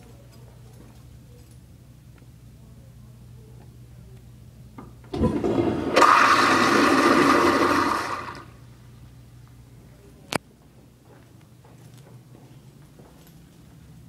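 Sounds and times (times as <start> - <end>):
toilet flushing: 5.1 - 8.6.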